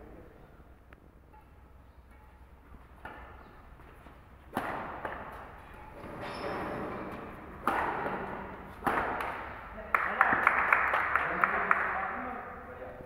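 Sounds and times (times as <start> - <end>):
rackets striking shuttlecock: 1.3 - 3.6, 4.5 - 6.0, 7.1 - 9.8.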